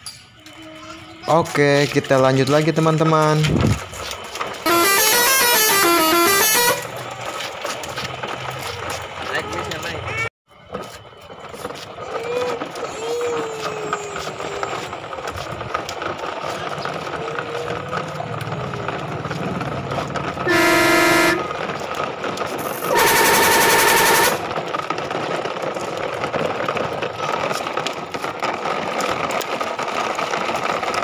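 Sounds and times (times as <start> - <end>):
toy trucks rattling over bricks: 0.0 - 31.0
truck horn blasts: 4.7 - 7.0, 20.4 - 21.6, 22.8 - 24.5.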